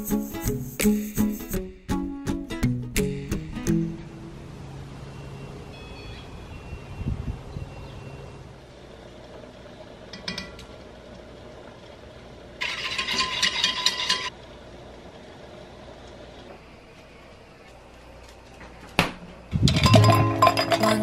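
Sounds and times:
utensil scraping metal saucepan: 12.6 - 14.3, 19.7 - 21.0.

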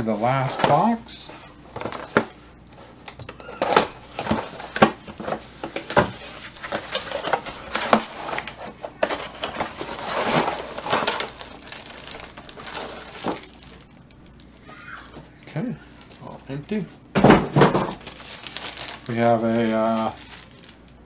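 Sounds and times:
cardboard box scraping and rustling: 6.1 - 11.1.

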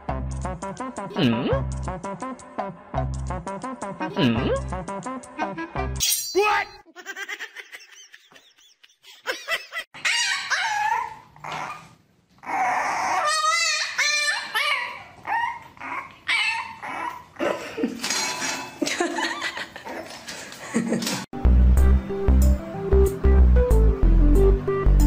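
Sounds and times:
puppy yipping and whining: 10.0 - 17.4.

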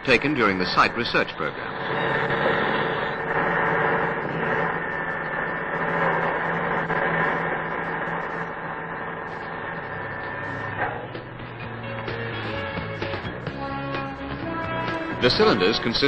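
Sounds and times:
heavy machinery engine drone: 0.0 - 16.0.

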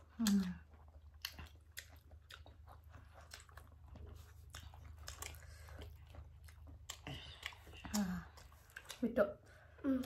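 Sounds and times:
low steady hum: 0.0 - 10.0
people chewing with mouth clicks: 0.0 - 10.0.

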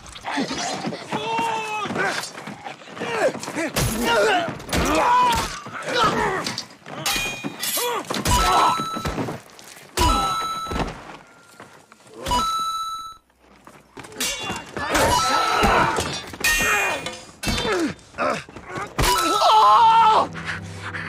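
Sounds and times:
men grunting and yelling: 0.2 - 6.7, 14.2 - 20.5.

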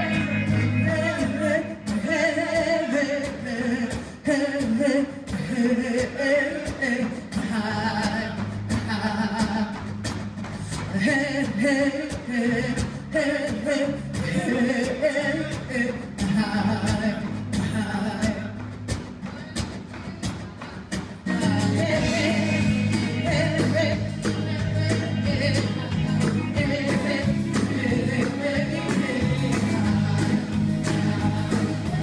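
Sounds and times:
person singing: 0.0 - 9.9, 19.2 - 32.0
acoustic guitar: 0.0 - 32.0
bass: 0.0 - 32.0
drum beat: 0.0 - 32.0
hand drums: 0.0 - 32.0.

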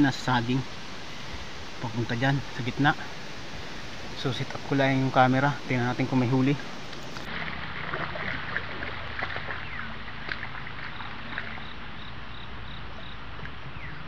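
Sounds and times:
person wading through river water: 6.6 - 12.4.

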